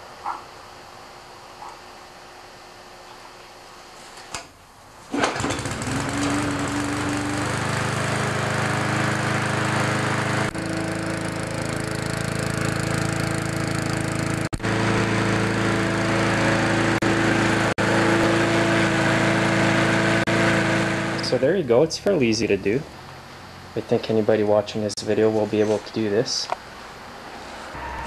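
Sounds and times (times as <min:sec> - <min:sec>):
lawnmower engine starting and running: 0:05.0 - 0:24.3.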